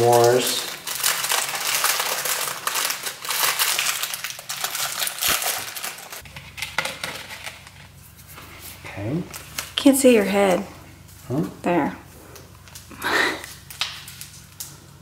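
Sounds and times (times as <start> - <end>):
snack packaging crinkling: 0.0 - 8.0, 12.4 - 15.0.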